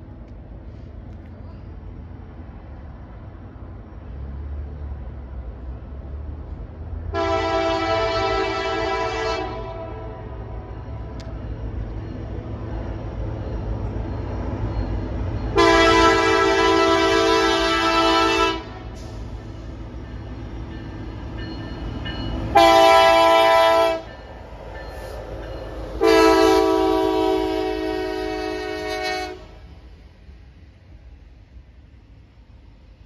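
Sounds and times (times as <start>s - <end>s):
diesel locomotive engine rumble: 0.0s - 33.0s
locomotive air horn blasts: 7.1s - 10.6s, 15.6s - 19.2s, 22.5s - 24.1s, 26.0s - 29.7s.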